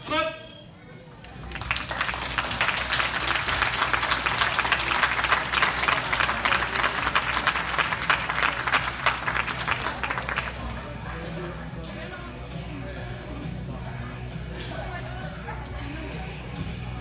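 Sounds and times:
spectators applauding: 0:01.4 - 0:10.9.

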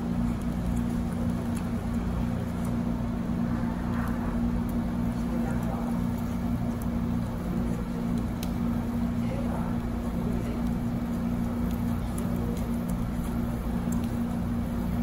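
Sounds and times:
faint clicks: 0:08.1 - 0:08.6.

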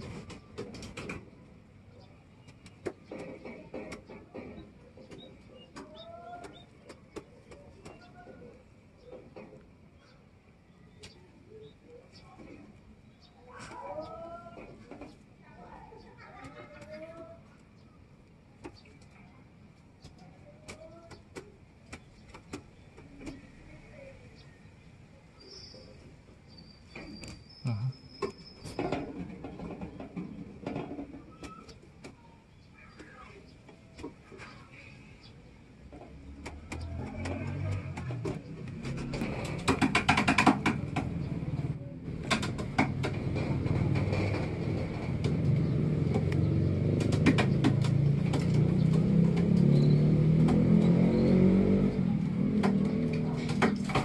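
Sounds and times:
handling clicks and knocks: 0:36.0 - 0:41.3.

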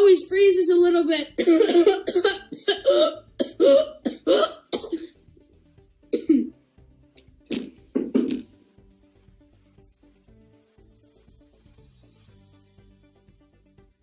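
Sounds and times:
boy clearing his throat: 0:01.4 - 0:05.1, 0:06.2 - 0:06.5
boy coughing: 0:01.4 - 0:05.1, 0:06.2 - 0:06.5.

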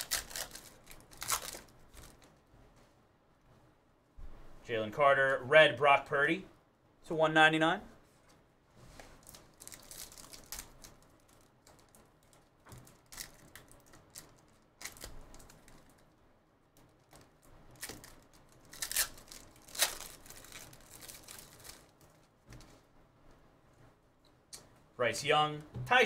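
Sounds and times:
foil wrapper tearing and crinkling: 0:00.0 - 0:02.3, 0:09.2 - 0:16.0, 0:17.0 - 0:22.3.

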